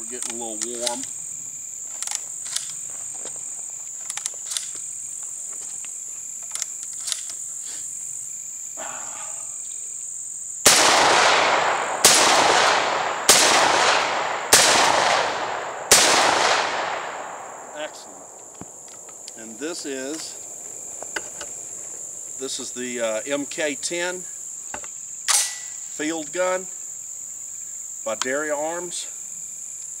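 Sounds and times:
high insect drone: 0.0 - 30.0
metallic clicks of shotgun loading: 2.0 - 2.8, 4.1 - 4.7, 6.4 - 7.4
shotgun shots echoing: 10.6 - 19.5.

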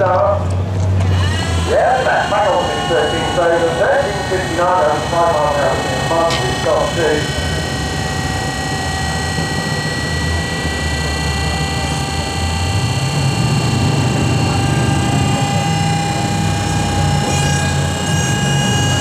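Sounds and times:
aero engine running: 0.0 - 19.0.

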